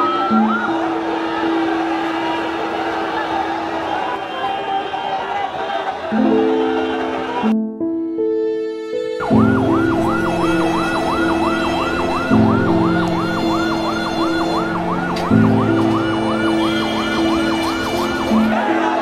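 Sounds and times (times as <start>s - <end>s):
ambulance siren yelping: 0.0s - 5.4s, 9.2s - 19.0s.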